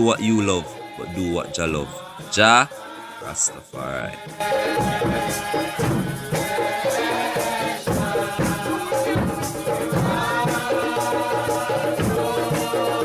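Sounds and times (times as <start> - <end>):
music with drums and shaker: 0.0 - 13.0.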